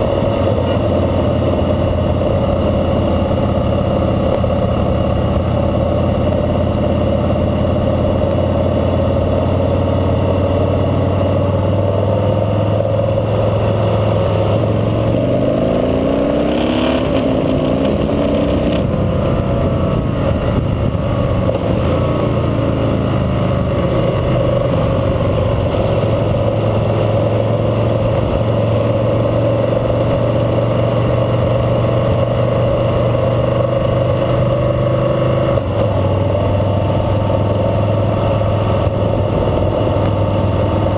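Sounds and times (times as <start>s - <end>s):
motorcycle engine running: 0.0s - 40.9s.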